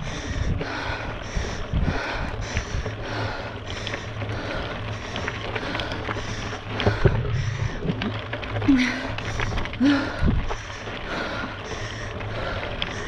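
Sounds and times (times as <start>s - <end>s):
bike tyres rumbling on dirt: 0.0s - 13.0s
gravel clicks: 0.0s - 13.0s
wind on camera: 6.8s - 8.2s.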